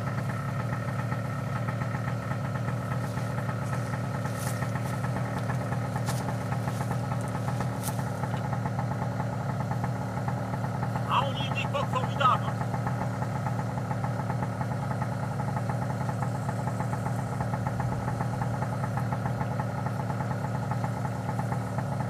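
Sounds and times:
two-stroke engine idling: 0.0 - 22.0.

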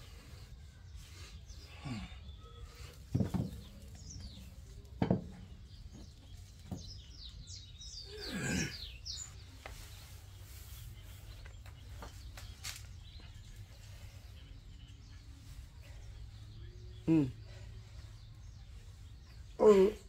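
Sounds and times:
birds chirping: 0.0 - 20.0
dumbbells thudding on concrete: 3.1 - 3.8.

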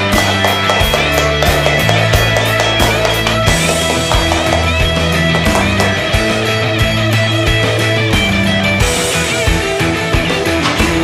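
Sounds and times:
drum beat: 0.0 - 6.8
rock music with electric guitar: 0.0 - 11.0.

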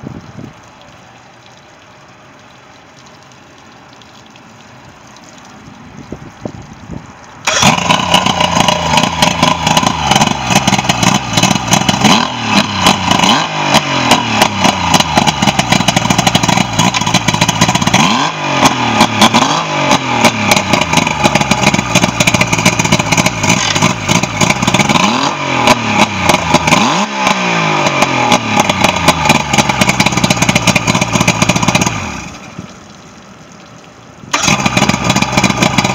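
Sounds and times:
outboard engine revving: 7.4 - 32.4, 34.3 - 35.9.

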